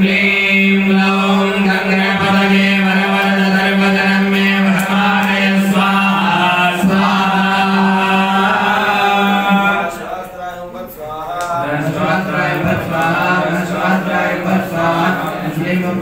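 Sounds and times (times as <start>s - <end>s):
priests chanting into microphone: 0.0s - 16.0s.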